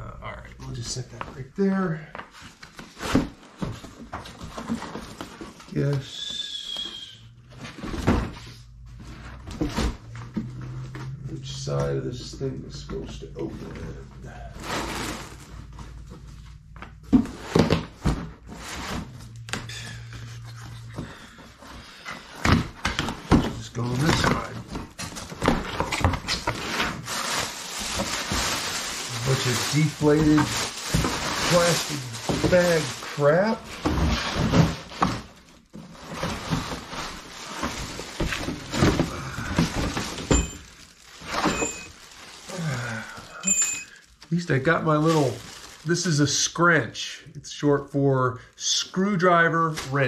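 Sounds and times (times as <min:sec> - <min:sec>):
plastic packing crinkling: 0:12.8 - 0:19.4, 0:21.7 - 0:46.4.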